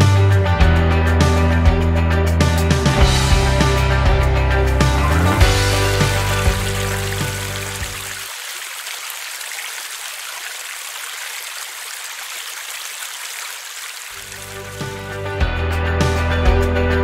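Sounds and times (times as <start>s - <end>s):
background music: 0.0s - 8.2s, 14.3s - 17.0s
water pouring onto stones: 5.5s - 15.1s.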